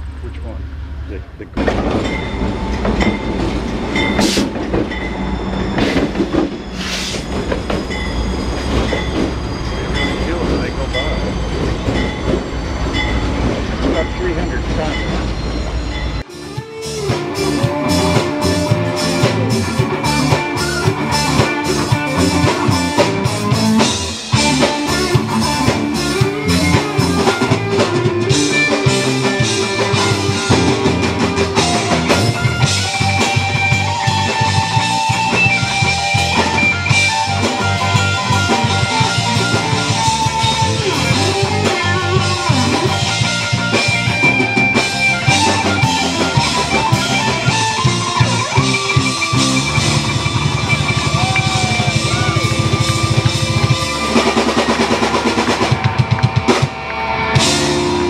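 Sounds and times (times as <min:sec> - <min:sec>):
bass guitar: 0:00.0 - 0:58.0
drums keeping a steady beat: 0:01.5 - 0:15.2, 0:16.2 - 0:58.0
electric guitar: 0:16.2 - 0:58.0.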